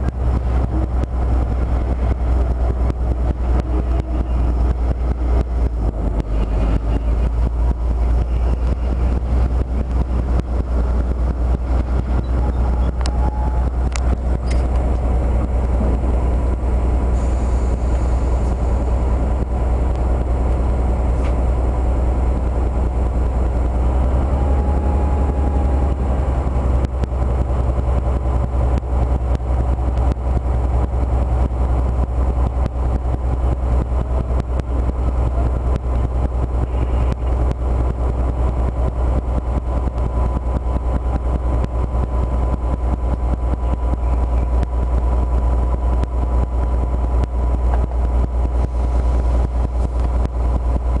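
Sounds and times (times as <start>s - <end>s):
locomotive diesel engine drone: 0.0s - 51.0s.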